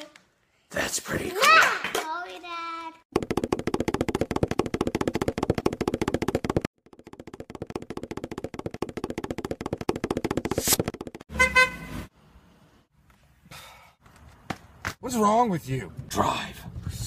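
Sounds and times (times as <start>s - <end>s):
fast rattling pulse: 3.1s - 11.2s
car horn honk: 11.3s - 12.1s.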